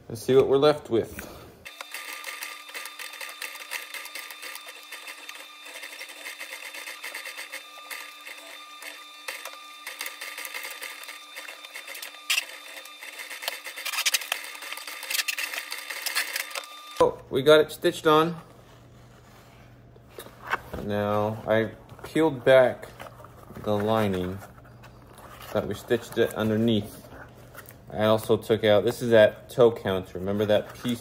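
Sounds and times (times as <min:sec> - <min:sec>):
motor hum: 0:01.6 - 0:17.3.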